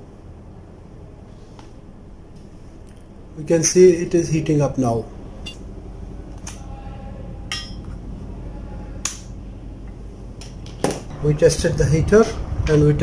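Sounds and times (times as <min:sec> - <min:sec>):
fan heater blower hum: 0:00.0 - 0:13.0.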